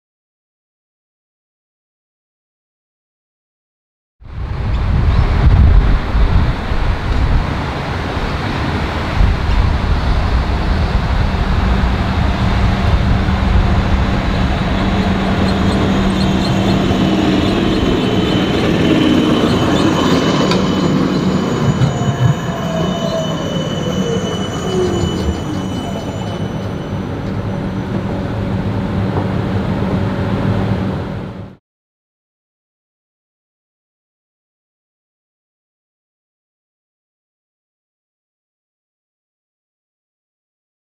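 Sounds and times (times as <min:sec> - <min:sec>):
falling whine: 0:04.3 - 0:31.6
tram wheels rolling: 0:04.3 - 0:31.6
high-pitched wheel squeal: 0:12.3 - 0:28.8.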